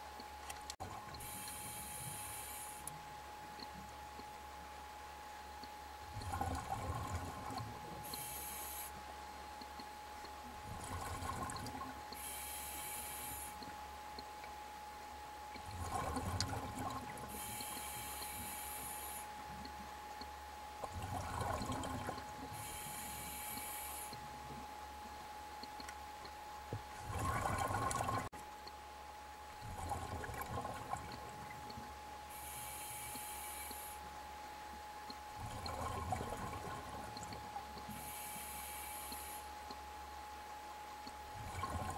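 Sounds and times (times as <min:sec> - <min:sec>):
faint steady whine: 0:00.0 - 0:41.9
regulator inhalation hiss: 0:01.2 - 0:02.9, 0:08.0 - 0:09.0, 0:12.2 - 0:13.6, 0:17.3 - 0:19.3, 0:22.6 - 0:24.2, 0:32.3 - 0:34.0, 0:37.9 - 0:39.5.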